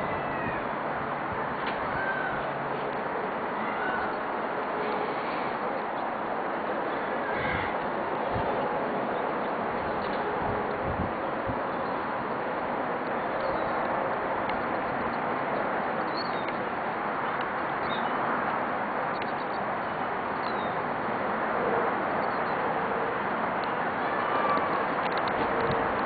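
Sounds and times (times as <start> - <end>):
outdoor background hiss: 0.0 - 26.0.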